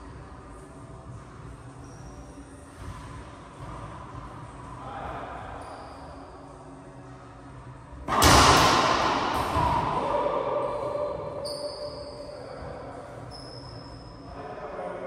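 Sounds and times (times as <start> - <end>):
loud bang echoing in a court: 8.0 - 12.9.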